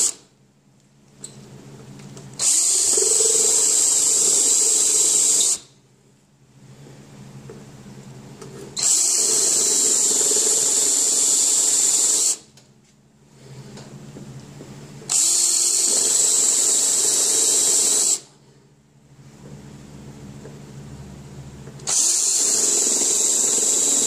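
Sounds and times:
drill cutting sheet steel: 0.0s - 0.2s, 2.4s - 5.7s, 8.8s - 12.4s, 15.1s - 18.3s, 21.8s - 24.0s.

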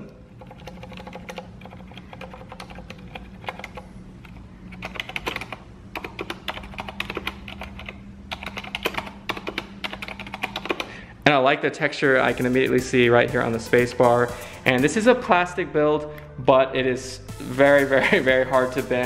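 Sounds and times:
quiet keyboard typing: 0.3s - 11.0s.

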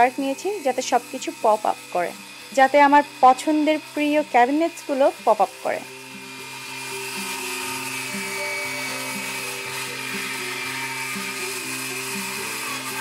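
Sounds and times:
background music with steady beat: 0.0s - 13.0s
power tool whirring: 0.0s - 13.0s.

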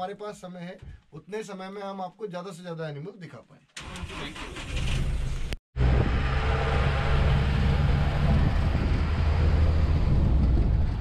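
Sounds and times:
road and rattle noise: 3.8s - 11.0s
vehicle engine rumble: 5.0s - 11.0s.

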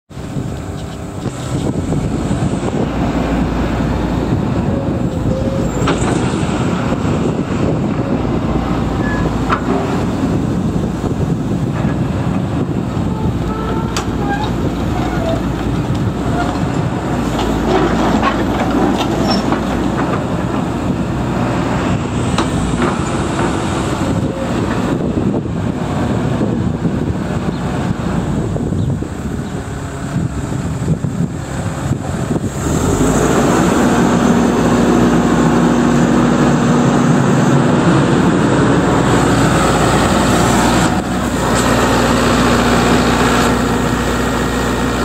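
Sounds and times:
excavator diesel engine running: 0.1s - 45.0s
short squeaks: 9.0s - 9.3s, 13.4s - 15.4s, 19.2s - 19.6s.

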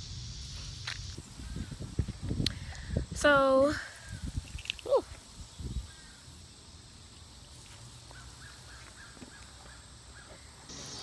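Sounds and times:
faint outdoor ambience: 0.0s - 11.0s
soft bird calls: 5.0s - 11.0s.

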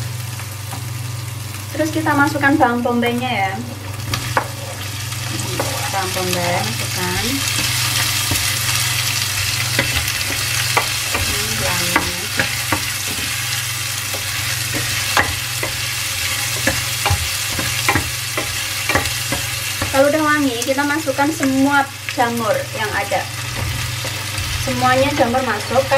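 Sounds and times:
onion sizzling in hot oil: 0.0s - 25.9s
spatula scraping a pan: 3.9s - 20.2s.

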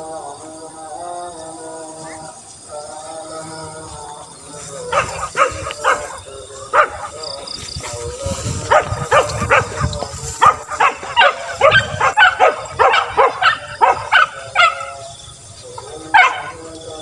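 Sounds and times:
hunting dogs barking: 4.8s - 17.0s.

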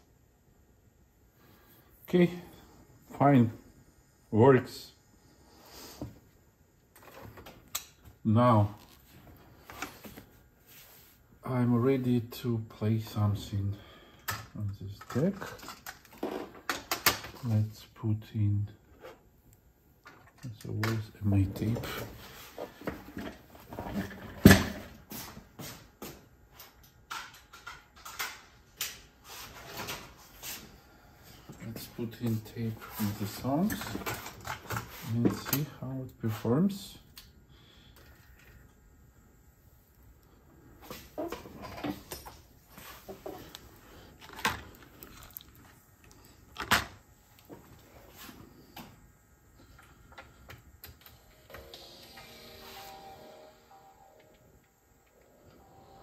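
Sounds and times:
music from tape: 51.1s - 54.5s.

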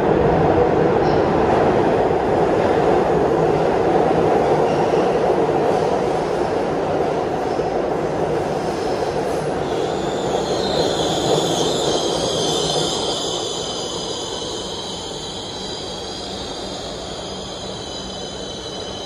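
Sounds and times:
subway train rumble: 0.0s - 19.0s
high-pitched brake squeal: 9.6s - 19.0s.

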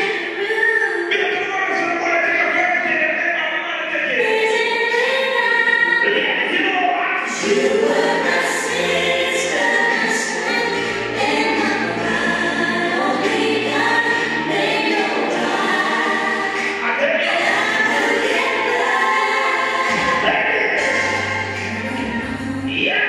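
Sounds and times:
voices singing in harmony: 3.9s - 23.0s
bass line: 6.0s - 23.0s.

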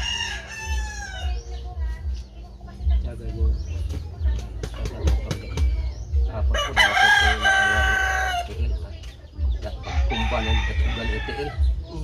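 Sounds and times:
rooster crowing: 0.0s - 1.4s, 6.6s - 8.5s, 9.9s - 11.6s.

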